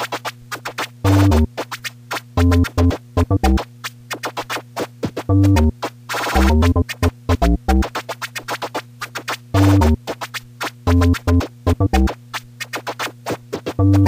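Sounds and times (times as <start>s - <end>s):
turntable scratching: 0.0s - 14.0s
steady bass note: 2.4s - 3.6s, 5.3s - 5.7s, 6.4s - 7.8s, 9.6s - 10.0s, 10.9s - 12.1s, 13.8s - 14.0s.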